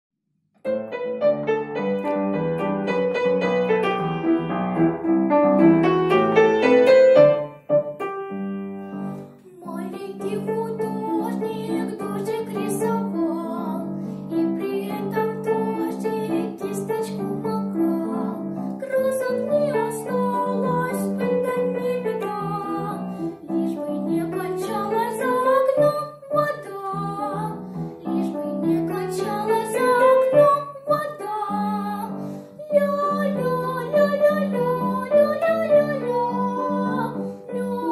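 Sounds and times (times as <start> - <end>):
upright piano: 0.6 - 37.9
girl singing: 9.2 - 37.9.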